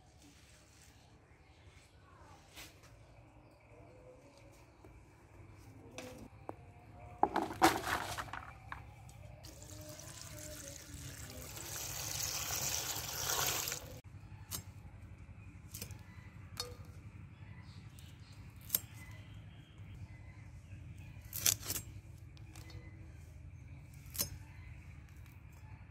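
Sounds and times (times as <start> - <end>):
water pouring onto leaves: 9.5 - 14.0.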